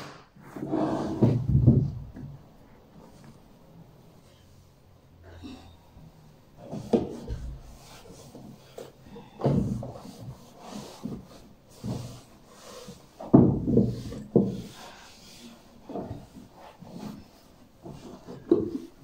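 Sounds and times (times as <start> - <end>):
knocks against a shelf: 1.2 - 2.4
cloth wiping a bookshelf: 6.5 - 19.0.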